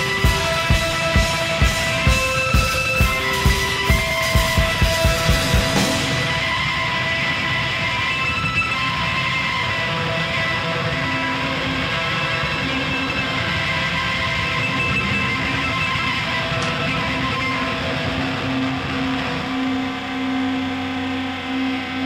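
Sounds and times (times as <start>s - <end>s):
rock music with guitar: 0.0s - 22.0s.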